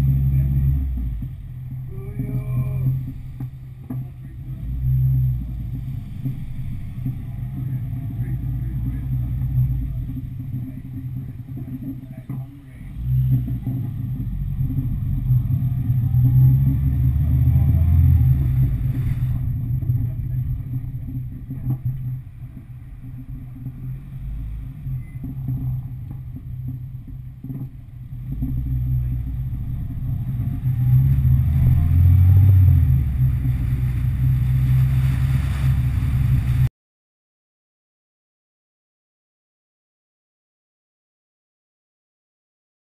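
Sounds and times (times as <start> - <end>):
car engine: 0.0 - 36.7
wind and road noise: 0.0 - 36.7.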